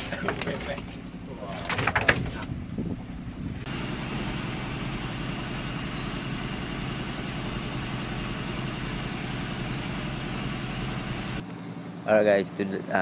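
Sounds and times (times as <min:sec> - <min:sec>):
boat engine humming steadily: 0:02.5 - 0:11.5.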